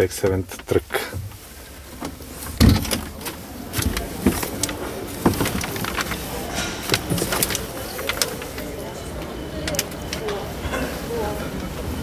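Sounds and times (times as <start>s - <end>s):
steady background noise: 0.0s - 12.0s
scattered clicks and knocks: 2.0s - 10.4s.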